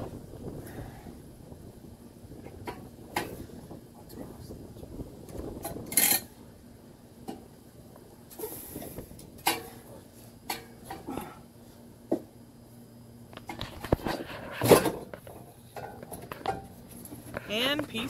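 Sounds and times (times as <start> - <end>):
metal exhaust pipe clanking: 5.6 - 6.4.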